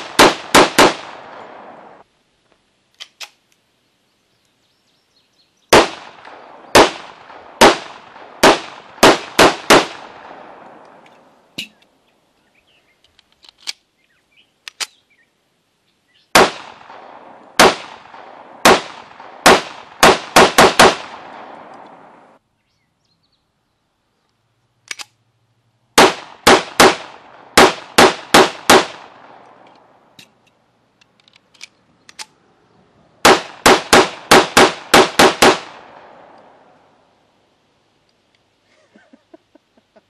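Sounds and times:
pistol shots: 0.0s - 2.0s, 5.7s - 11.0s, 16.4s - 22.1s, 26.0s - 29.6s, 33.2s - 36.5s.

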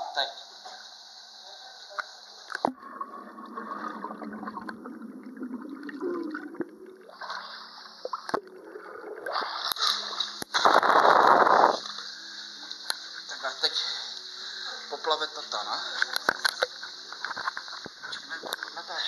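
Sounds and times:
water sloshing and gurgling underwater: 2.1s - 12.0s
rush of bubbles: 2.6s - 11.9s.

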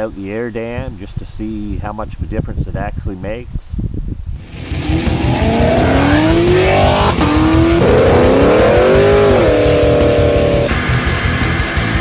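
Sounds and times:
car engine revving: 4.5s - 10.9s
loud background music: 4.5s - 12.0s.

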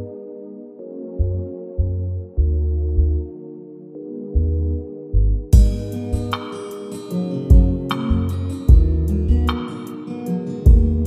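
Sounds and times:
held synth chords: 0.0s - 11.0s
deep bass notes: 1.2s - 3.3s, 4.3s - 6.4s, 7.5s - 9.6s, 10.7s - 11.0s.

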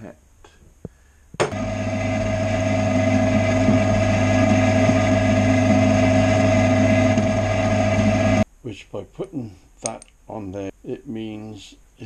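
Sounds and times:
lathe running with whine: 1.5s - 8.4s.

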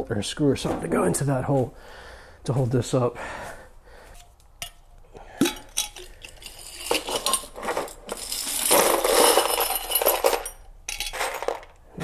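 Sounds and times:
screws clattering out of jar: 5.4s - 11.8s
metal screws clinking in glass jar: 5.5s - 11.8s.

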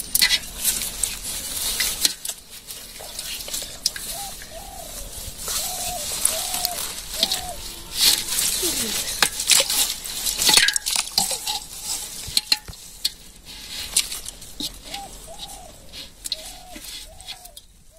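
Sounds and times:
bird cooing: 3.0s - 10.1s, 14.6s - 17.9s.

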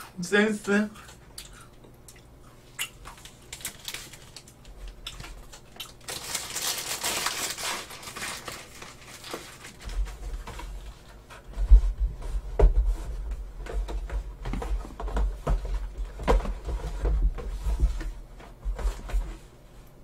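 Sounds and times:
wrapper crinkling: 3.1s - 10.2s.

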